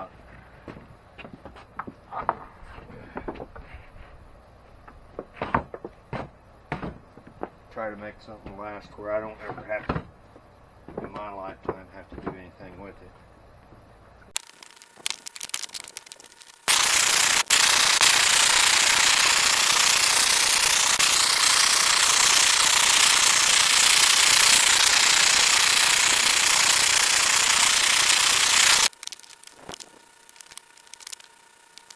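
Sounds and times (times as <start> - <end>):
propane torch hissing: 15.9 - 31.9.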